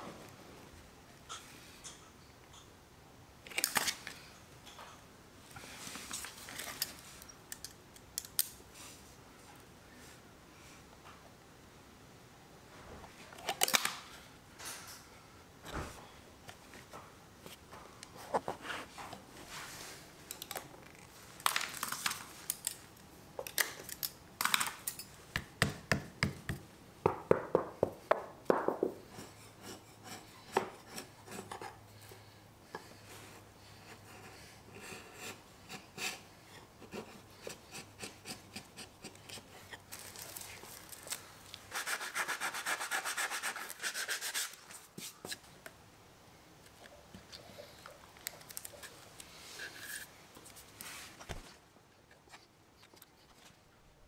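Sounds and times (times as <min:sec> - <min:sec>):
sanding wood: 0:41.7 - 0:44.6.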